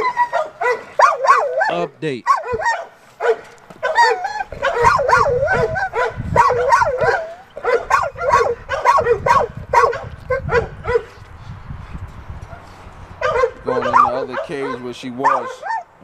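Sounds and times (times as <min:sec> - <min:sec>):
dog whining and yelping: 0:00.0 - 0:11.2, 0:13.2 - 0:16.0.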